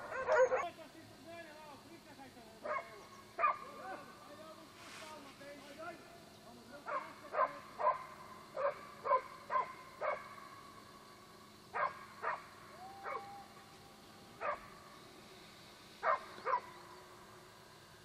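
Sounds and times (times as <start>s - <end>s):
dog barking: 0.0s - 0.8s, 2.6s - 3.7s, 6.9s - 10.3s, 11.8s - 13.3s, 14.4s - 14.8s, 16.0s - 16.7s.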